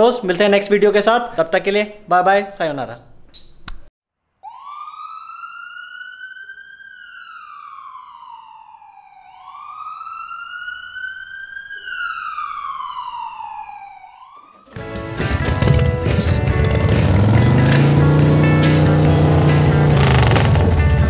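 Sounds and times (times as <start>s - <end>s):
emergency siren wailing: 4.4s - 14.8s, 17.0s - 21.0s.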